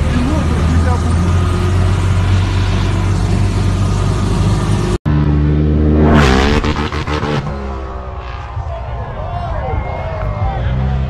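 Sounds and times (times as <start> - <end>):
engine running steadily: 0.0 - 5.4
heavy vehicle engine droning: 0.0 - 11.0.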